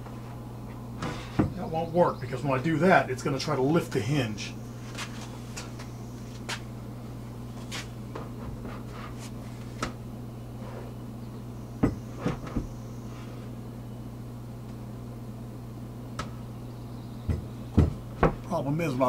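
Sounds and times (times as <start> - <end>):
steady low hum: 0.0 - 19.0
wooden box knocks and bumps: 11.8 - 12.7, 17.3 - 18.5.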